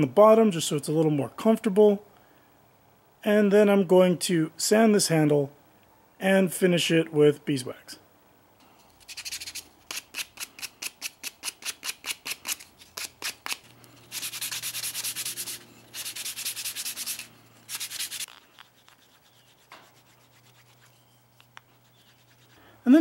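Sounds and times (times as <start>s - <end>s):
sandpaper rubbing on wood: 9.0s - 21.0s, 21.7s - 22.6s.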